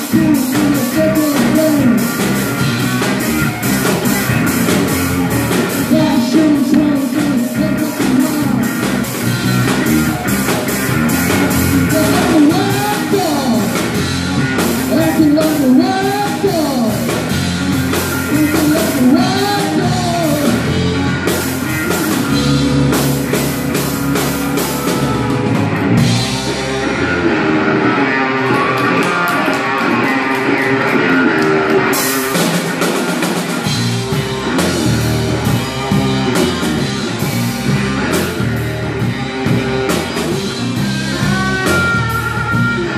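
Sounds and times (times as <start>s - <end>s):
man singing: 0.0s - 2.2s, 5.8s - 8.9s, 11.7s - 13.9s, 14.9s - 17.2s, 18.2s - 20.8s
drum kit: 0.0s - 42.9s
electric guitars: 0.0s - 42.9s.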